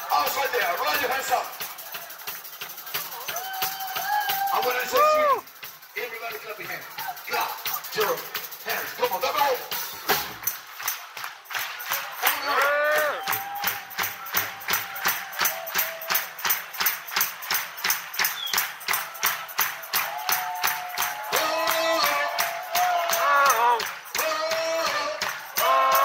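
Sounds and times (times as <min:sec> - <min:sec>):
crowd clapping along: 0:00.0 - 0:26.0
live band music: 0:07.9 - 0:10.8
male singing voice: 0:21.3 - 0:26.0.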